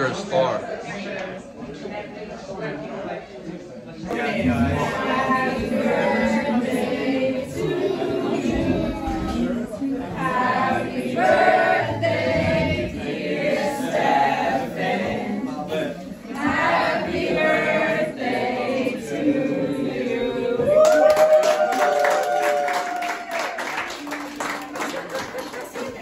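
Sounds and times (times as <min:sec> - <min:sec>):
voices singing together: 0:04.0 - 0:21.7
hand clapping: 0:20.8 - 0:26.0.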